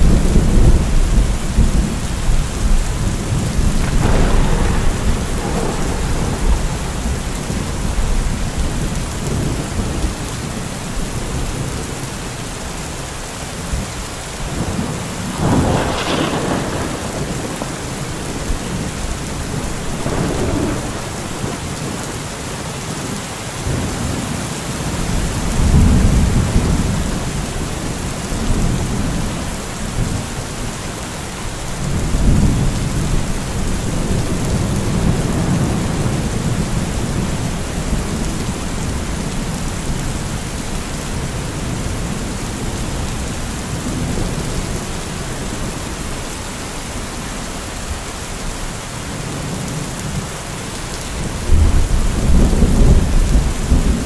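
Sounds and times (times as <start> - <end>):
thunder: 0.0 - 10.1, 14.6 - 22.0
heavy rain: 0.0 - 54.0.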